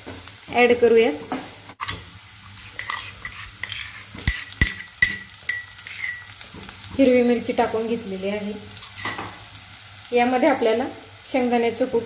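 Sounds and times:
onion frying in oil: 0.0 - 12.0
metal clinks against pan: 3.6 - 6.3, 9.0 - 9.3.

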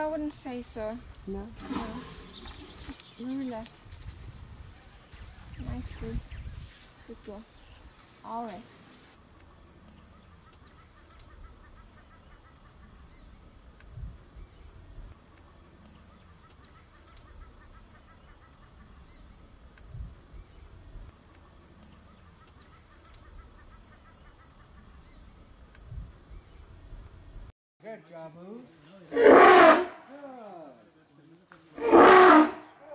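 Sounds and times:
high-pitched insect drone: 0.0 - 27.5.

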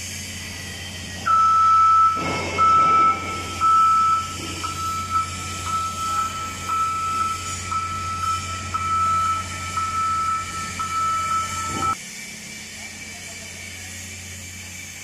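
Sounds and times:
low machinery hum: 0.0 - 15.0
electronic warning beeps: 1.3 - 12.0.

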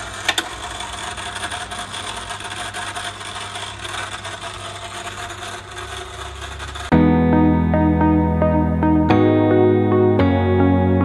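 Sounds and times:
chain hoist rasping and rattling: 0.0 - 6.9.

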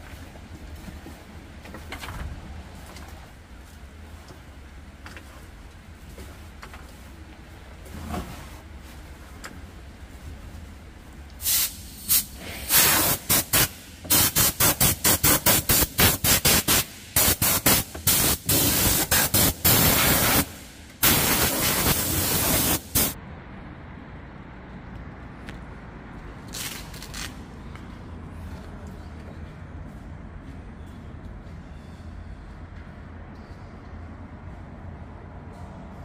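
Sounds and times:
hissing spray bursts: 11.4 - 23.2.

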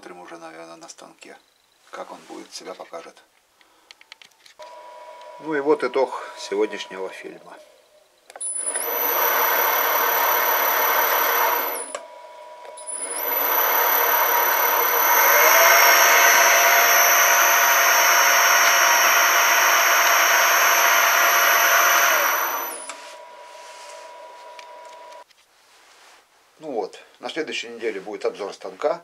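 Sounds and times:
lathe motor running: 4.6 - 7.2, 8.4 - 25.2
high-pitched whine: 4.6 - 25.2.

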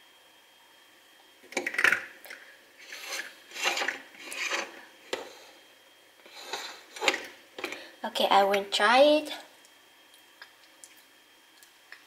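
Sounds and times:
plastic scraping: 2.8 - 5.4.

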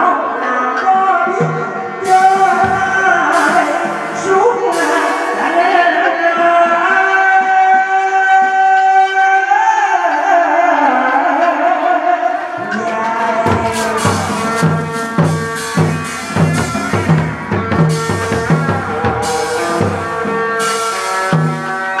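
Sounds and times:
sustained instrumental notes: 1.3 - 5.7, 12.3 - 22.0
steady drum beat: 1.4 - 5.3, 12.6 - 22.0.

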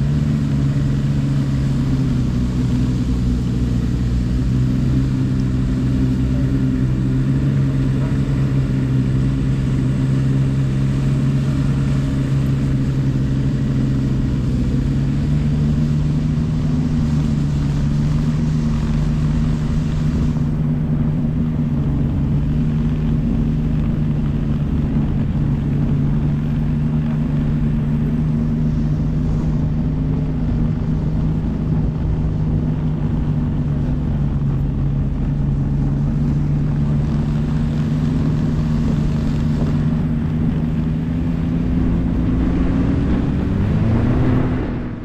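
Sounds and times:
snowmobile engine running: 0.0 - 45.0.

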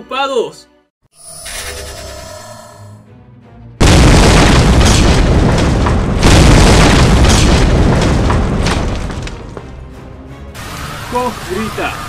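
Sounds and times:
explosion blast and roar: 3.8 - 9.5.

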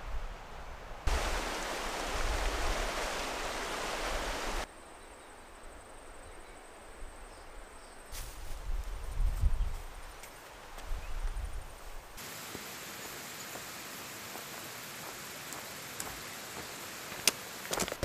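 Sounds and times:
wind rumbling on microphone: 0.0 - 4.6, 8.2 - 12.2
river water rushing: 1.1 - 4.7, 12.2 - 17.8
long grass rustling: 7.5 - 18.0
high insect buzz: 12.2 - 18.0.

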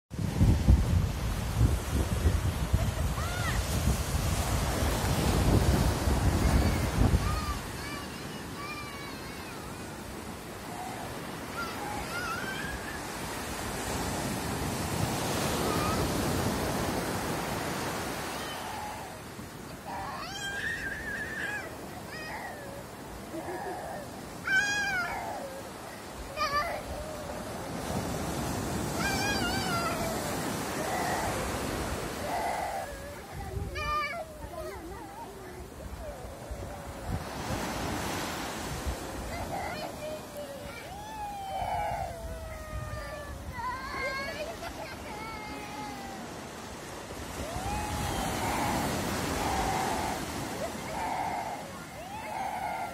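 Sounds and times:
small surf waves breaking on sand: 0.1 - 52.9
toddler squealing: 3.2 - 3.6, 10.7 - 13.3, 15.3 - 16.8, 18.2 - 38.2, 39.3 - 46.4, 47.3 - 52.9.

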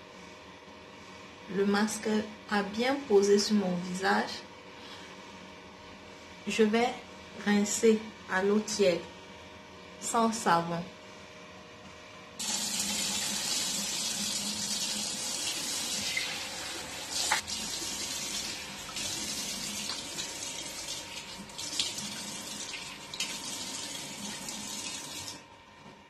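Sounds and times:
tap water running into basin: 12.4 - 25.4.

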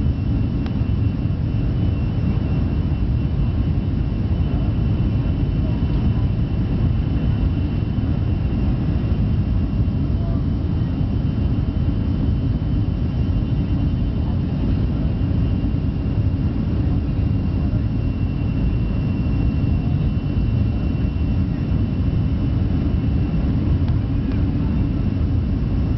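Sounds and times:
jet engine cabin rumble: 0.0 - 25.9.

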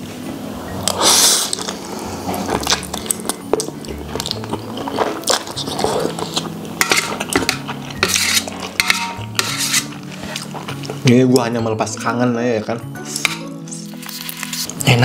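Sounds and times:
loud noodle slurp: 0.7 - 3.2
wet chewing: 0.9 - 8.8.

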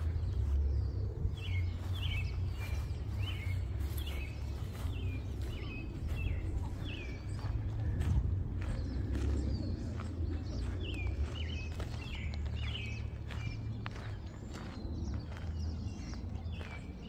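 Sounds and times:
faint footsteps on trail: 0.0 - 17.0
songbird chirping: 0.0 - 17.0
steady low rumble: 0.0 - 17.0.

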